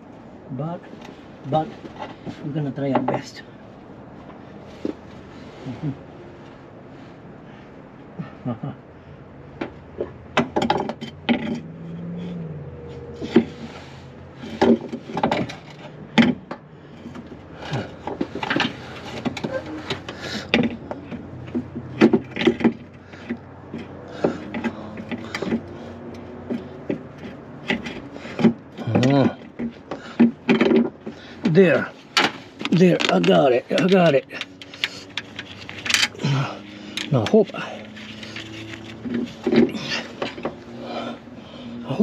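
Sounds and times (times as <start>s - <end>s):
metal knocks and scraping: 9.6s - 36.2s, 36.9s - 41.2s.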